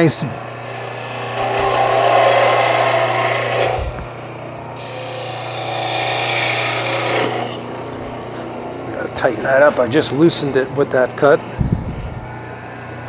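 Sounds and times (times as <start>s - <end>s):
chisel cutting spinning wood: 0.0s - 4.2s, 4.8s - 7.8s
wood lathe humming: 0.0s - 9.7s.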